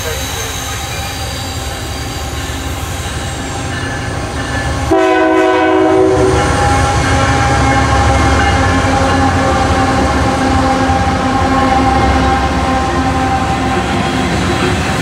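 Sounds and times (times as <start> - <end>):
diesel locomotive engine rumbling: 0.0 - 15.0
train horn blast: 4.9 - 14.6.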